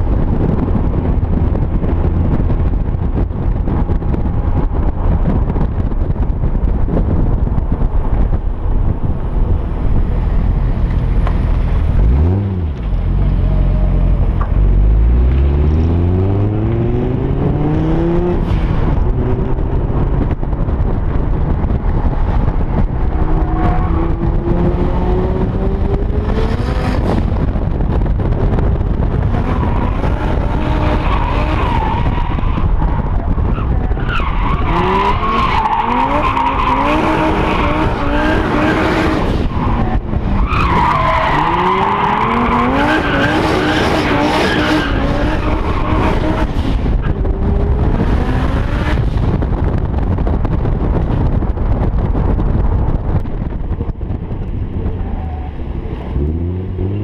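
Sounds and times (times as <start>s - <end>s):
car engine revving hard: 29.2s - 32.0s, 34.6s - 39.5s, 40.9s - 49.2s.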